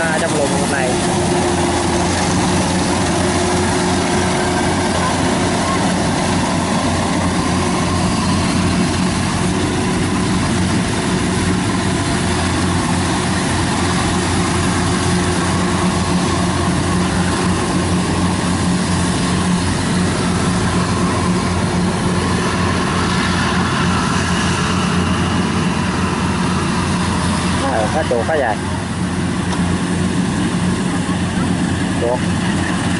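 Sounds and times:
combine harvester diesel engine: 0:00.0 - 0:32.9.

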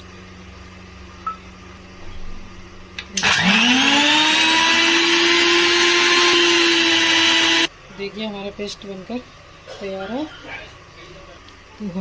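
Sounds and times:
mixer grinder motor whine: 0:03.1 - 0:07.7.

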